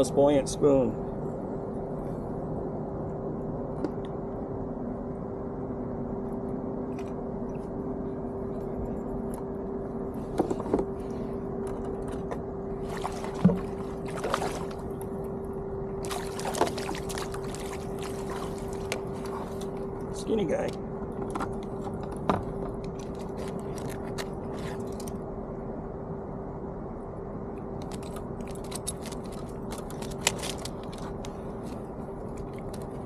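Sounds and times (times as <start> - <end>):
steady motor hum: 0.0 - 33.0
water running along hull: 12.1 - 15.3, 16.0 - 20.2
water splashing: 12.8 - 15.0, 16.0 - 19.7.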